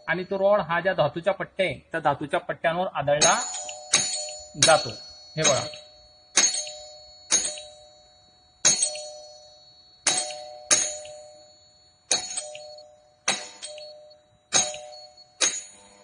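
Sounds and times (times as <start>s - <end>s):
doorbell ringing: 3.2s - 16.0s.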